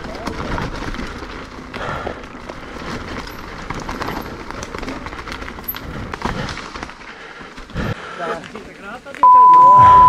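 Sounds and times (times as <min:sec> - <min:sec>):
bike knocks and rattles: 0:00.0 - 0:07.1
bike tyres rolling over dirt and rock: 0:00.0 - 0:09.2.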